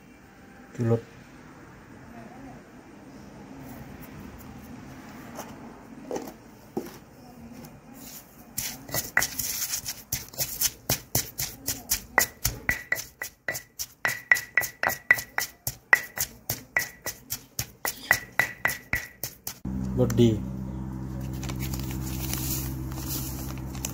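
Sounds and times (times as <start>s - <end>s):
pestle pounding in stone mortar: 8.6s - 19.7s.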